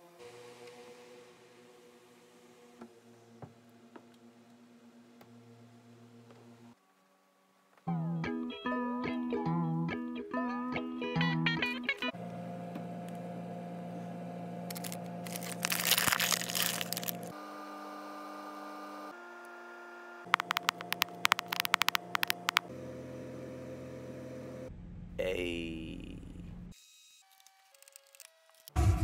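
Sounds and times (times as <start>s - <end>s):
crackling: 14.7s - 17.3s, 20.3s - 22.7s
sharp plastic clicks: 20.3s - 22.7s.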